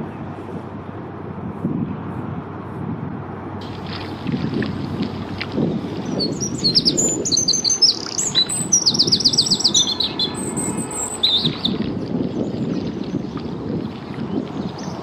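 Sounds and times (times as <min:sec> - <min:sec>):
low steady rumble: 0:00.0 - 0:15.0
songbird chirping and trilling: 0:05.7 - 0:13.4, 0:14.3 - 0:15.0.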